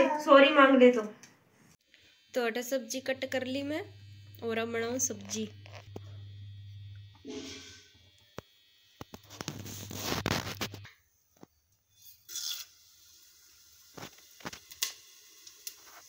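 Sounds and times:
seeds sizzling in hot oil: 0:07.2 - 0:10.8, 0:11.9 - 0:16.0.

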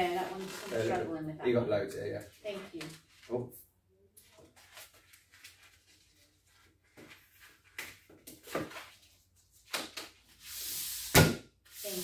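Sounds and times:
balloon rubbing and squeaking: 0:00.0 - 0:01.1.

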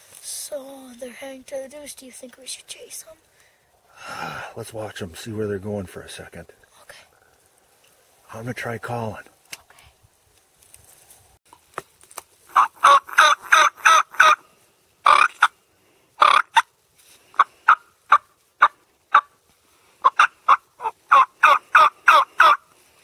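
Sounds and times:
turkey call yelps: 0:12.5 - 0:14.4, 0:15.0 - 0:15.5, 0:16.2 - 0:16.7, 0:17.4 - 0:19.3, 0:20.0 - 0:22.6.

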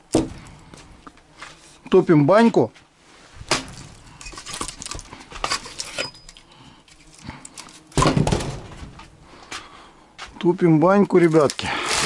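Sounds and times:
heavy thump: 0:00.1 - 0:00.7, 0:08.0 - 0:09.1.

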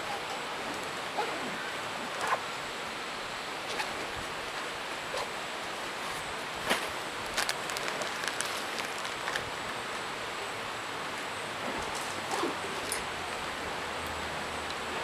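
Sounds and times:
background hiss: 0:00.0 - 0:15.0
backpack fabric rustling: 0:06.0 - 0:09.5.

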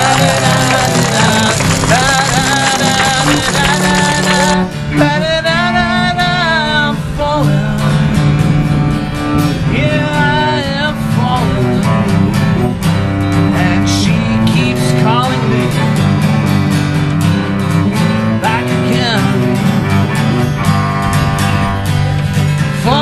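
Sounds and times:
acoustic guitar chords: 0:00.0 - 0:23.0
bowed cello: 0:17.8 - 0:23.0.

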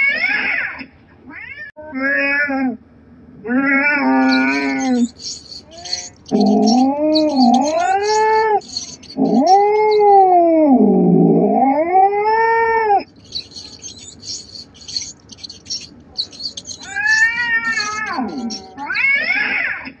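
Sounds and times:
cat yowling: 0:03.6 - 0:10.5, 0:13.3 - 0:19.4
faint high chirping: 0:04.1 - 0:10.4, 0:13.0 - 0:19.0.

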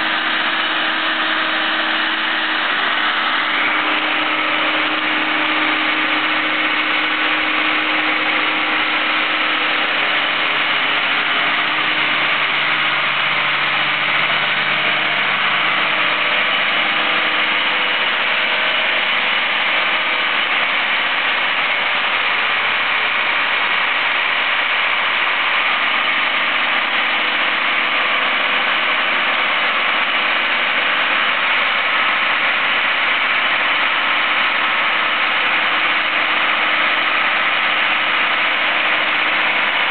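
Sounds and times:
low hum: 0:00.0 - 0:30.2
crane engine running: 0:00.0 - 0:39.9.

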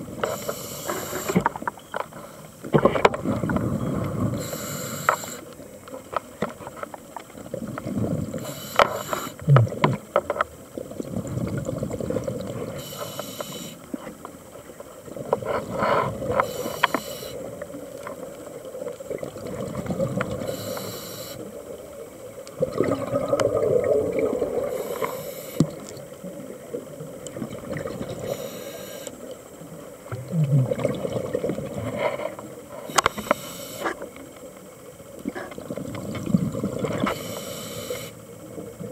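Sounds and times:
regulator breathing hiss: 0:00.2 - 0:01.4, 0:04.3 - 0:05.5, 0:08.4 - 0:09.4, 0:12.7 - 0:13.9, 0:16.4 - 0:17.5, 0:20.4 - 0:21.5, 0:24.7 - 0:25.6, 0:28.2 - 0:29.3, 0:32.8 - 0:34.0, 0:37.0 - 0:38.2
bubbles rumbling and gurgling: 0:02.7 - 0:04.6, 0:05.6 - 0:08.6, 0:09.4 - 0:12.8, 0:17.4 - 0:20.6, 0:21.4 - 0:28.5, 0:29.3 - 0:32.8, 0:34.1 - 0:37.2.

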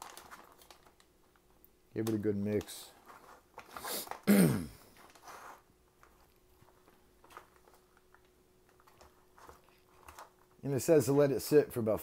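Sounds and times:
foil pouch crinkle: 0:00.0 - 0:10.9
faint scrapes and rustles: 0:02.8 - 0:04.2, 0:04.9 - 0:10.7
spoon stirring in foil pouch: 0:04.9 - 0:10.6.

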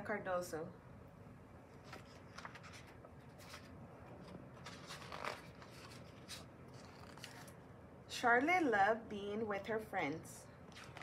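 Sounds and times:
book pages rustling: 0:01.7 - 0:07.6, 0:10.7 - 0:11.0.

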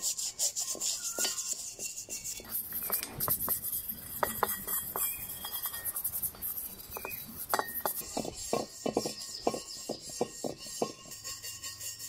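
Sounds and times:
small tool tapping metal wheel: 0:00.6 - 0:12.0
metal wheel ringing: 0:02.8 - 0:12.0.

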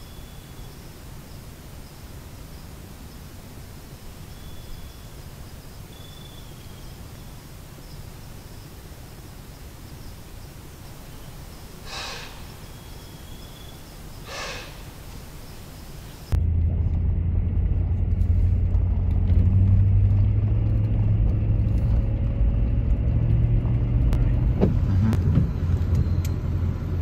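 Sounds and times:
low rumble: 0:16.3 - 0:27.0.

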